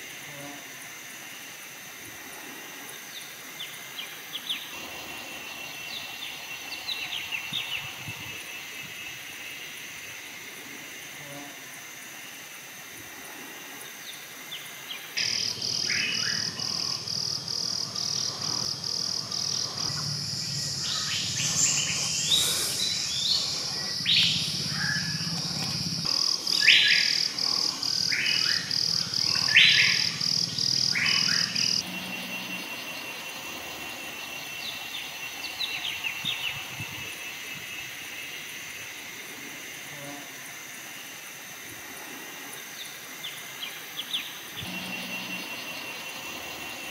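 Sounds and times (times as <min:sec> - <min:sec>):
pulsing insect buzz: 0:00.0 - 0:46.9
birds chirping and calling: 0:15.2 - 0:33.8.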